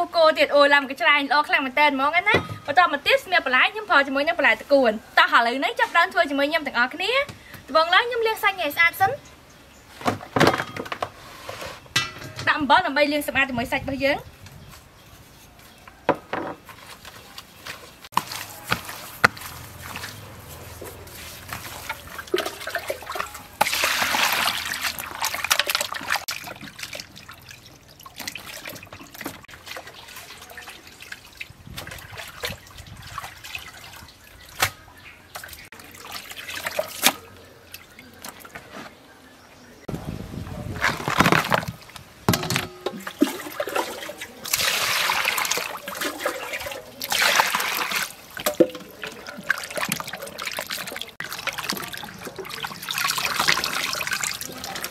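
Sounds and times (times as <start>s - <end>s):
water sloshing and trickling: 13.6s - 39.2s, 40.4s - 54.9s
water rushing and splashing: 42.9s - 54.9s
wet meat squelching: 43.0s - 54.9s.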